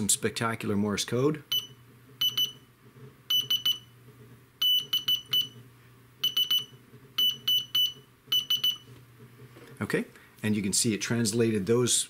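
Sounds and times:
high-pitched buzzer beeps: 1.5 - 2.6, 3.3 - 3.9, 4.6 - 5.6, 6.2 - 8.9.

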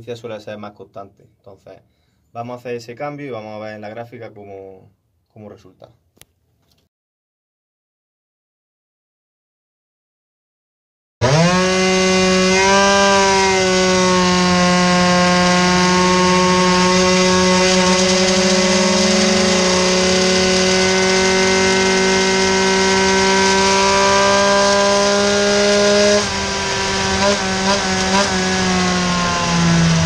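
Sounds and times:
scooter engine at full throttle: 11.2 - 30.0.

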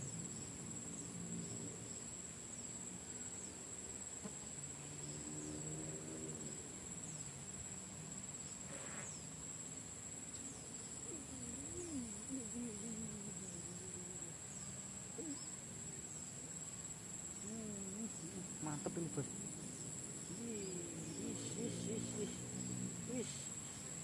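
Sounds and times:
high-pitched insect drone: 10.3 - 24.0.

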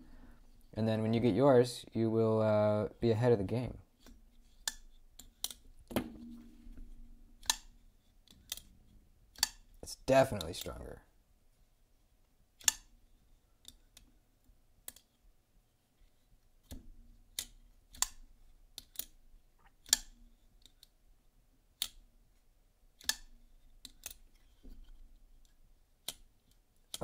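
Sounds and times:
folding knife clicking: 7.4 - 7.7, 17.4 - 18.2, 19.8 - 20.2, 23.0 - 24.2.

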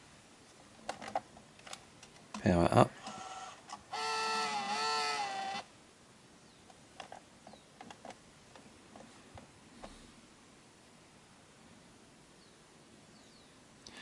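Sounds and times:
tape mechanism motor whining: 3.0 - 5.7.

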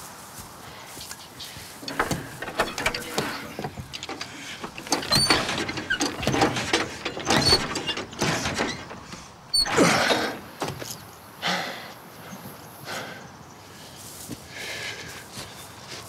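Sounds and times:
mechanism creaking and clunking: 1.8 - 11.0.

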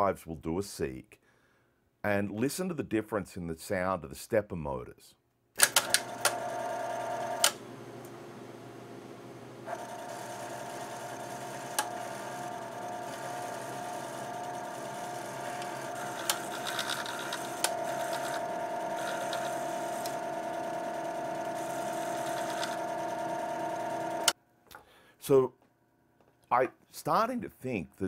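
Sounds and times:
floppy drive stepper motors buzzing: 5.7 - 7.6, 9.6 - 24.4.

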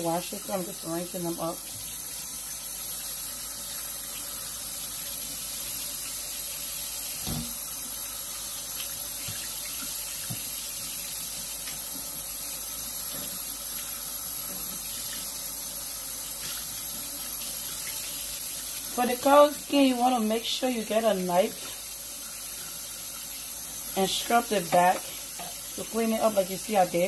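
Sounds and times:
faucet running into metal sink: 0.0 - 27.0.

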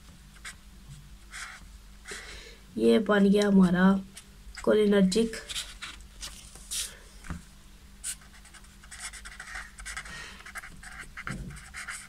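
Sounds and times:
marker scratching on paper: 1.3 - 1.6, 8.0 - 12.0.

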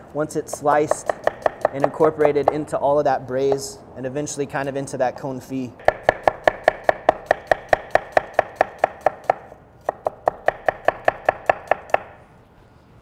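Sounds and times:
knife chopping on wooden board: 0.5 - 2.6, 5.8 - 12.1.

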